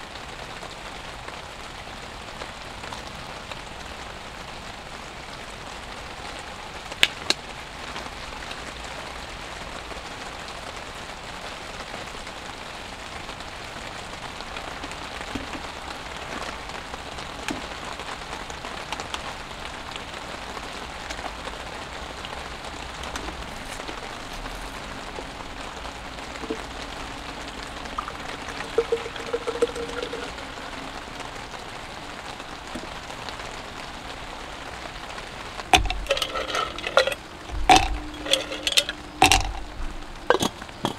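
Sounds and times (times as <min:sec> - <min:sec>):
steady rain falling: 0:00.0 - 0:40.9
objects being handled: 0:28.0 - 0:30.4, 0:35.7 - 0:40.9.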